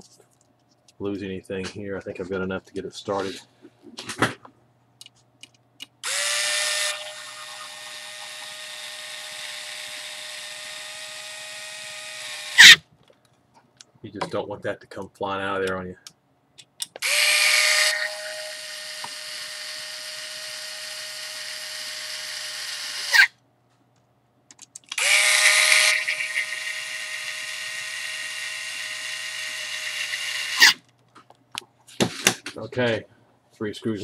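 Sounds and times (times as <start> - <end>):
power screwdriver driving screws: 6.0 - 12.8, 17.0 - 23.3, 24.9 - 30.8.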